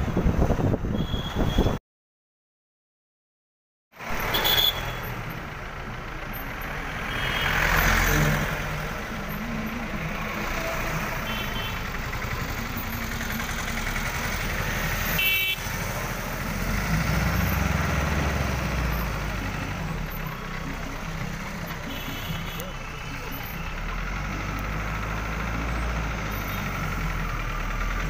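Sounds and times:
vehicle engines humming: 0:04.0 - 0:28.0
vehicle passing: 0:06.7 - 0:21.9.

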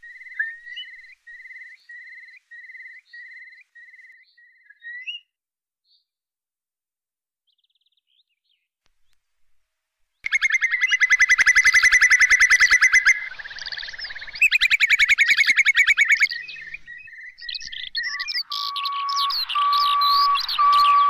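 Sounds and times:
repeated steady whistle: 0:00.0 - 0:04.2, 0:16.2 - 0:21.0
bird whistled trills: 0:00.0 - 0:05.2, 0:10.2 - 0:21.0
high bird chirps: 0:00.0 - 0:05.2, 0:10.2 - 0:21.0.

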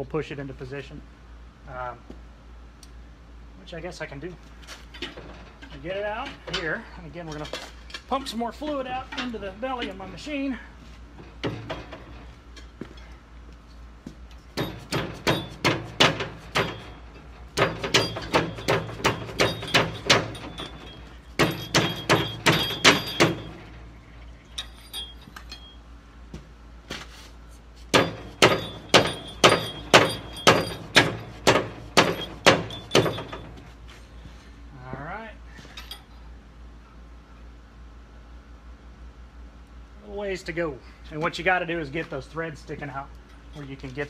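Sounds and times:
hammer striking metal cylinder: 0:14.6 - 0:17.0, 0:17.6 - 0:23.6, 0:27.9 - 0:33.5.

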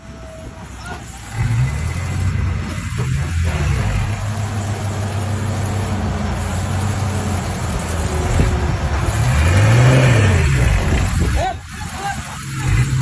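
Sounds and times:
truck diesel engine revving: 0:00.0 - 0:13.0.

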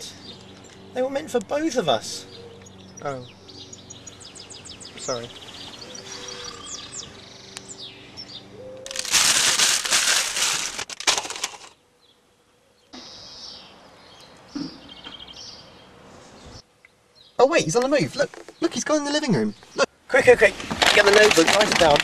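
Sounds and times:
birds chirping faintly: 0:00.0 - 0:09.2, 0:11.7 - 0:21.7
crisp packets rustling and clattering: 0:08.9 - 0:11.8, 0:20.4 - 0:22.0.

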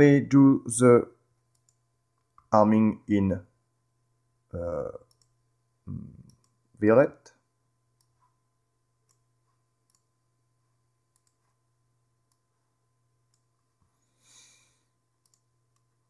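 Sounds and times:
low steady hum: 0:00.0 - 0:16.0
computer mouse clicks: 0:01.5 - 0:01.8, 0:05.0 - 0:05.4, 0:06.2 - 0:06.6, 0:09.8 - 0:10.1, 0:11.1 - 0:11.6, 0:13.3 - 0:13.5, 0:15.2 - 0:15.9.

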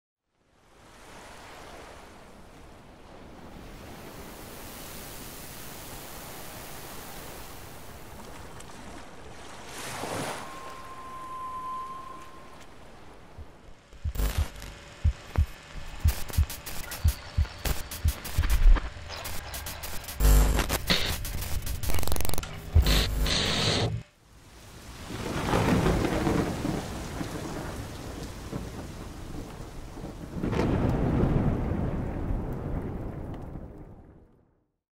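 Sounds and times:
ocean surf washing: 0:00.7 - 0:32.0
steady high tone: 0:10.1 - 0:24.1
thunder rumbling: 0:10.5 - 0:23.4, 0:25.1 - 0:34.2
steady rain: 0:12.7 - 0:33.9
loud noise cut off: 0:14.0 - 0:24.0.

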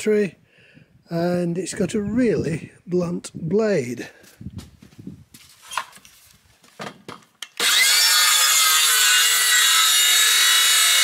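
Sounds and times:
circular saw cutting a board: 0:07.6 - 0:11.0.

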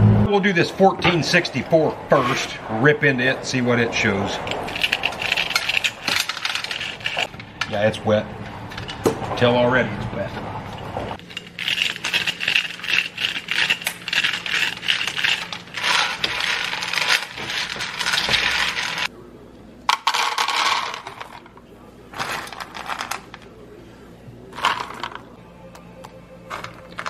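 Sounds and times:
corn kernels rattling into metal pan: 0:04.6 - 0:07.3, 0:11.2 - 0:19.1, 0:19.9 - 0:21.5.

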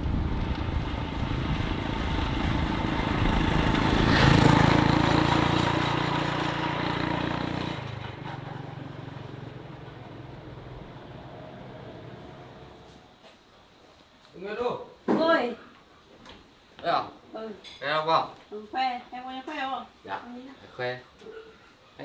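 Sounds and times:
small motorbike engine passing: 0:00.0 - 0:13.0.

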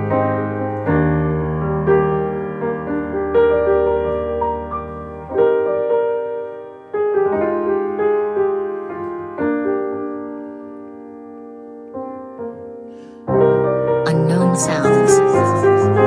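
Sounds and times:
slow piano chords: 0:00.0 - 0:16.0
soft piano notes: 0:00.0 - 0:16.0.

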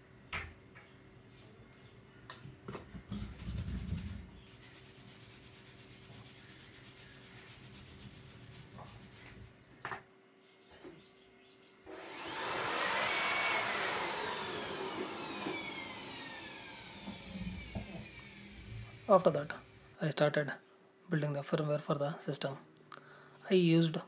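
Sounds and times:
brush scrubbing circuit board: 0:03.2 - 0:09.5.

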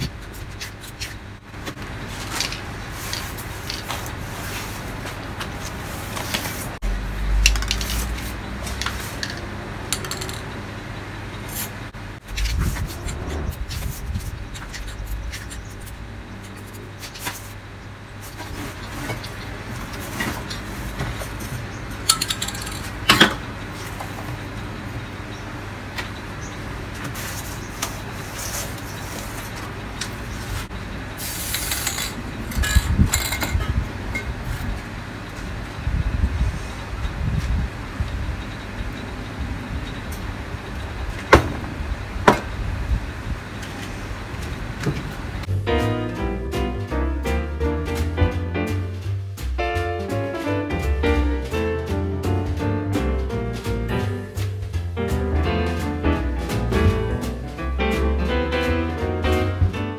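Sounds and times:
metal clatter: 0:08.8 - 0:10.6, 0:22.0 - 0:23.4
metal cans clinking and knocking: 0:22.1 - 0:23.4.

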